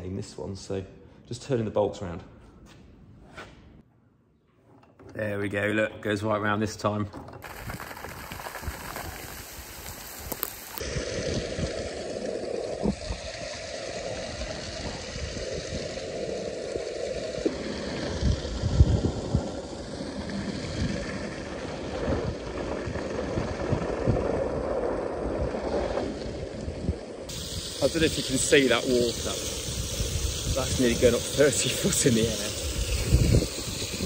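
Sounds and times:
water hissing from hose leak: 7.4s - 22.4s, 27.3s - 34.0s.

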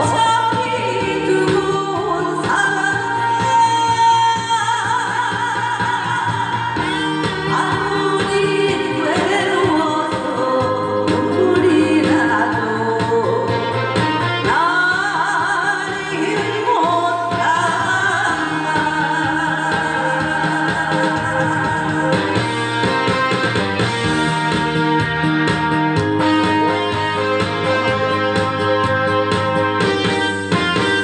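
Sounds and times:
woman singing into microphone: 0.0s - 23.6s
instrumental accompaniment: 0.0s - 31.0s.

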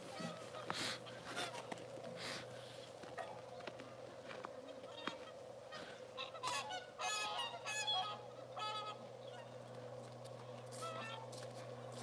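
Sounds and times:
low background hum: 0.0s - 12.0s
swans honking: 0.0s - 12.0s.

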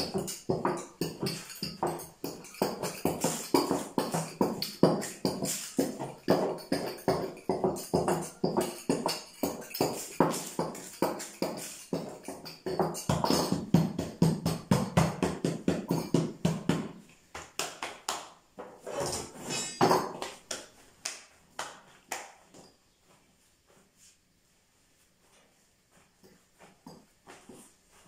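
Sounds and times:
rolling pin clacking on wooden board: 0.0s - 17.0s.

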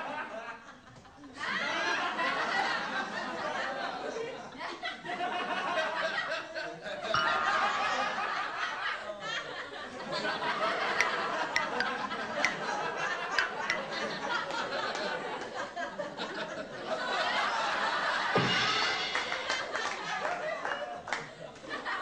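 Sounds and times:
group laughter: 0.0s - 18.5s, 19.5s - 22.0s.

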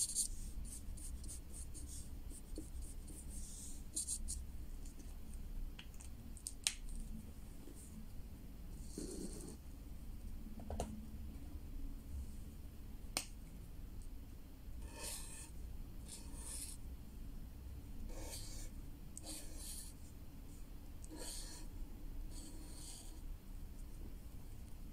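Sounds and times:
marker scratching on paper: 0.0s - 4.4s, 14.8s - 16.8s, 18.1s - 20.0s, 21.1s - 21.7s, 22.3s - 23.2s.

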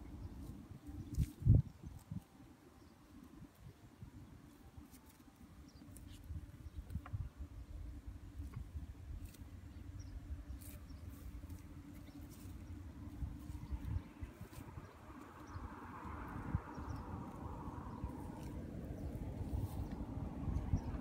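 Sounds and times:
low uneven rumble: 0.0s - 21.0s
buffalo tearing and chewing grass: 0.3s - 2.3s, 8.4s - 15.4s, 17.2s - 20.6s.

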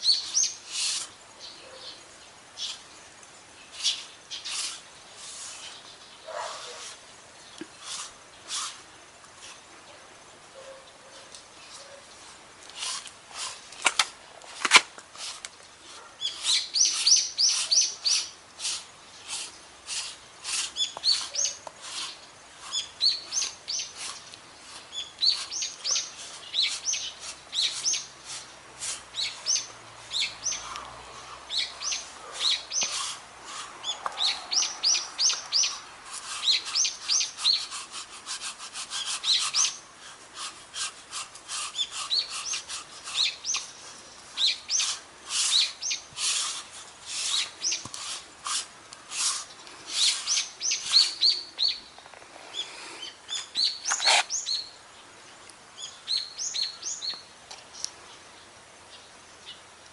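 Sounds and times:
lint roller squeaking on fur: 0.0s - 1.1s, 3.8s - 7.0s, 7.8s - 8.8s, 12.7s - 13.8s, 14.6s - 30.8s, 31.5s - 51.4s, 53.3s - 54.5s.

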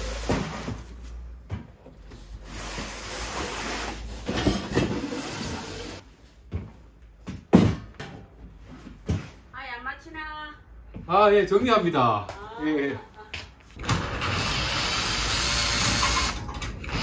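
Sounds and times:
objects scraping roughly: 2.4s - 6.0s.

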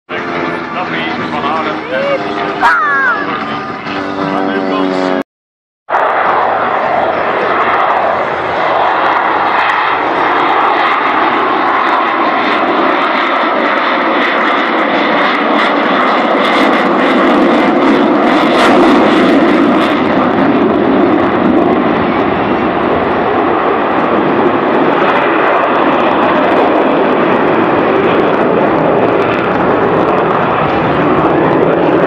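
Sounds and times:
jet aircraft engine noise: 0.1s - 5.2s, 5.9s - 32.0s.

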